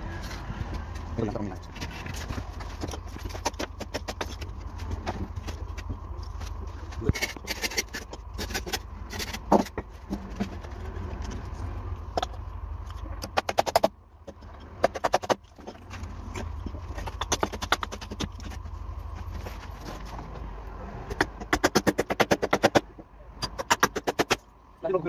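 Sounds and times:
low rumble: 4.3s - 13.2s.

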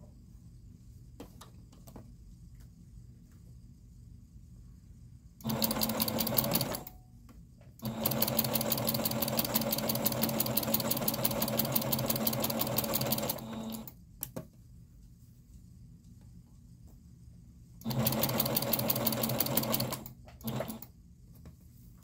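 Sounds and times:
electric sewing machine stitching: 5.4s - 6.9s, 7.8s - 13.9s, 17.8s - 20.9s.

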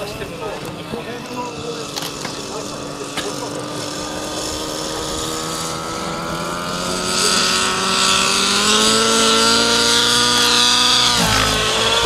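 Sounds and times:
model helicopter engine and rotor: 0.0s - 12.0s.

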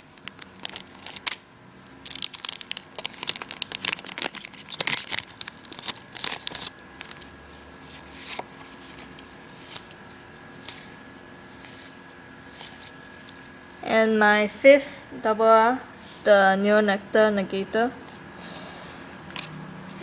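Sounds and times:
foil pack crinkling: 0.0s - 1.4s, 2.0s - 7.3s.

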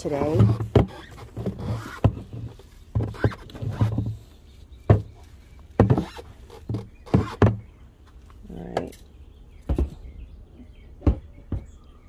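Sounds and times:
rustling of dry leaves and cardboard: 0.0s - 8.7s.

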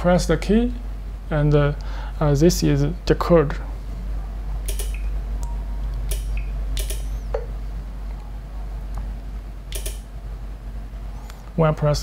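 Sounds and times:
low electrical hum: 0.0s - 12.0s
remote button clicks: 4.7s - 7.5s.

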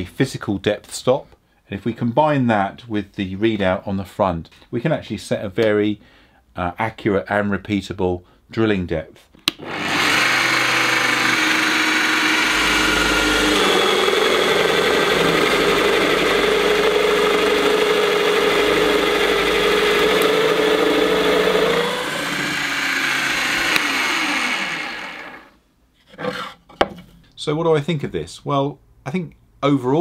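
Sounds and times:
bench drill boring into plywood: 9.6s - 25.5s
motor winding down: 9.6s - 25.5s.

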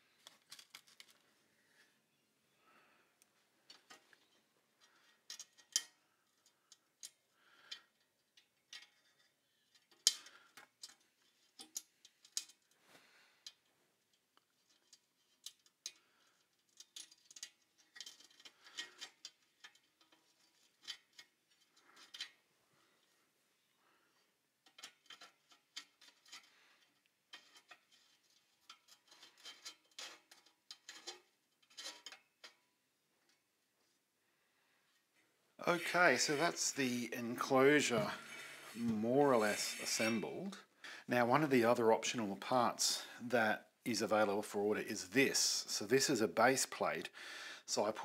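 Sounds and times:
screwdriver clicking and scraping metal: 3.7s - 12.8s, 14.4s - 22.4s, 24.6s - 32.6s.

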